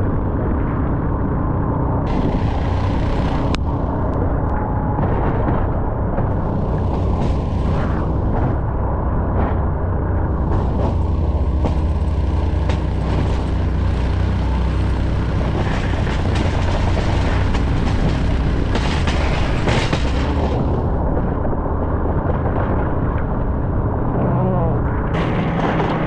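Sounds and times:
deep truck engine rumble: 0.0 - 26.0
plow scraping snow: 2.1 - 4.4, 6.2 - 8.8, 10.2 - 20.9.

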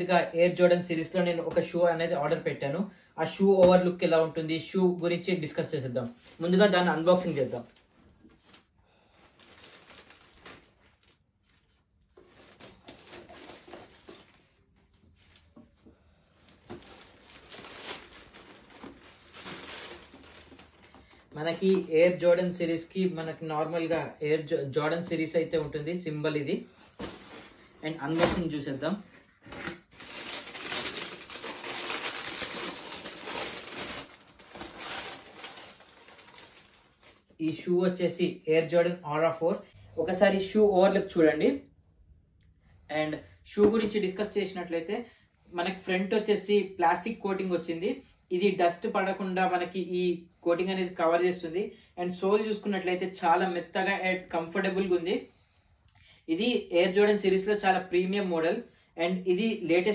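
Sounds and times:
plastic bag rustling and crinkling: 5.9 - 22.2, 26.8 - 37.4.

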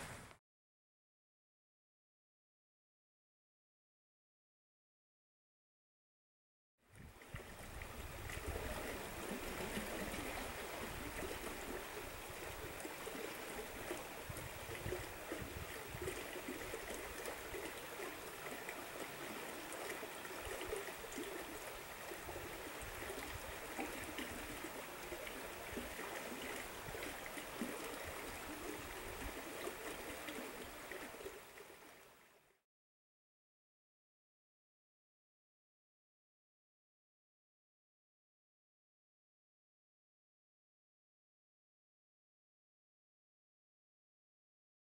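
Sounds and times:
river water rushing: 7.5 - 32.3.

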